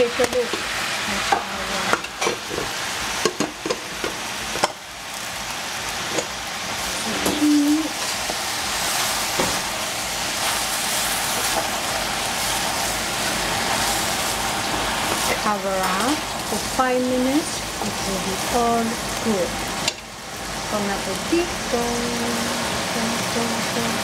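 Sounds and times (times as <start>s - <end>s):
vegetables sizzling in a pot: 0.0s - 24.0s.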